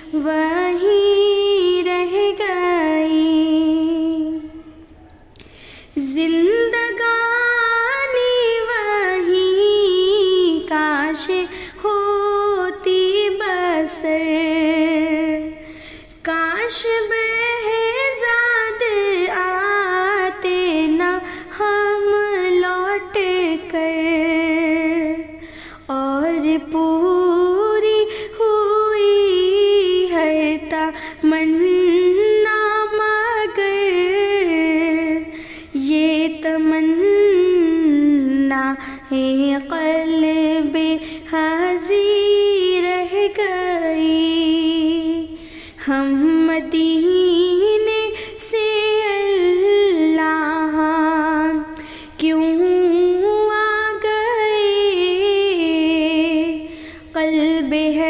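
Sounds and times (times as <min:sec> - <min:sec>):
woman singing unaccompanied: 0:00.0 - 0:04.9, 0:05.9 - 0:58.0.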